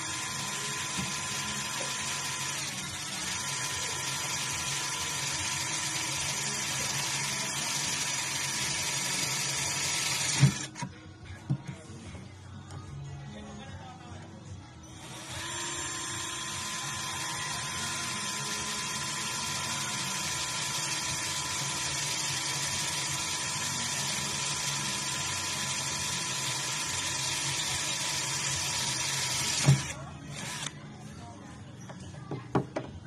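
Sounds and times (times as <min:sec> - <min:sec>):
cordless drill whining: 0:00.0 - 0:10.9, 0:14.9 - 0:30.8.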